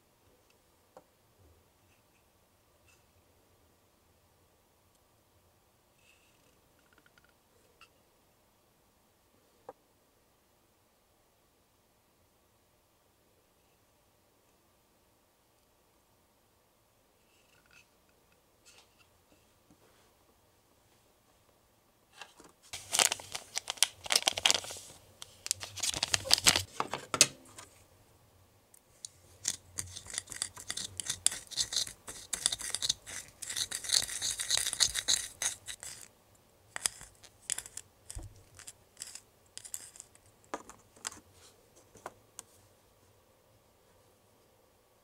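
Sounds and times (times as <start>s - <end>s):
scratchy plastic rustling: 22.3s - 27.0s, 29.3s - 36.1s
plastic spatula scraping cup: 29.4s - 36.1s, 36.8s - 40.2s.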